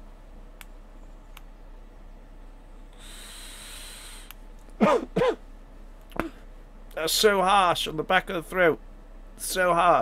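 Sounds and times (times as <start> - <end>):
airy hiss of vape drag: 3.0 - 4.3.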